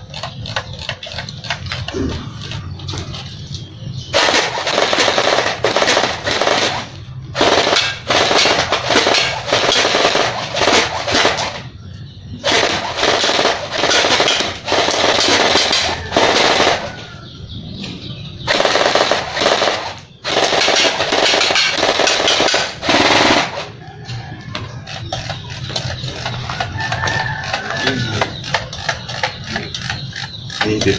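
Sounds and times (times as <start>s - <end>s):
airsoft rifle firing full auto: 4.2s - 11.7s, 12.4s - 16.9s, 18.5s - 23.7s.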